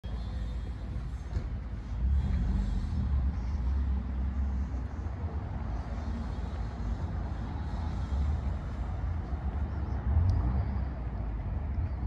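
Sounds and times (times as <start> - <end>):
low rumble: 0.0 - 12.0
quiet street ambience: 0.0 - 12.0.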